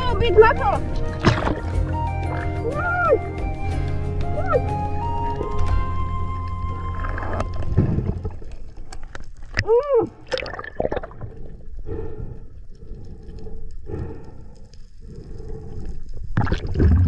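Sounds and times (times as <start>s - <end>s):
underwater gurgling and bubbling: 1.0s - 2.6s, 6.6s - 9.6s, 10.2s - 12.2s, 15.7s - 17.0s.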